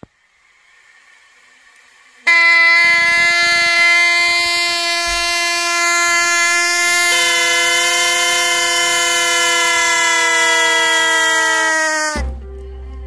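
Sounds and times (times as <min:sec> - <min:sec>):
toy trumpet horns chord: 0:02.2 - 0:12.3.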